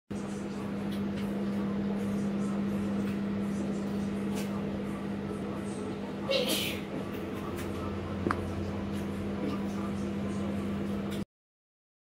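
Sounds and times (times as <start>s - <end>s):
low machine hum: 0.1s - 11.2s.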